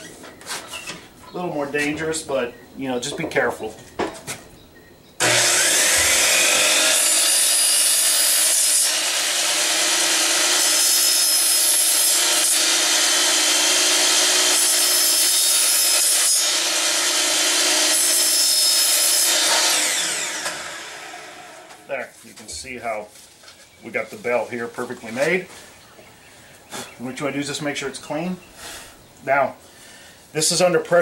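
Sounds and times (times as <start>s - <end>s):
miter saw cutting plastic pipe: 5.2s - 21.9s.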